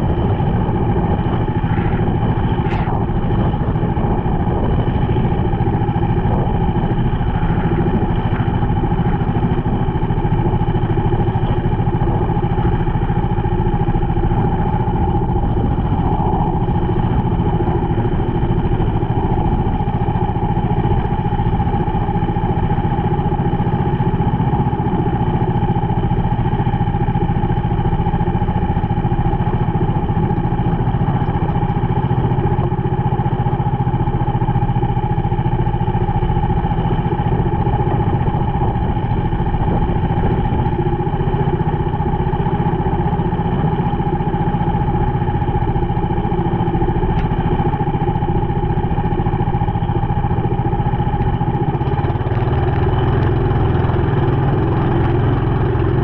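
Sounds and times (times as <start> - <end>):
boat engine running: 0.0 - 56.0.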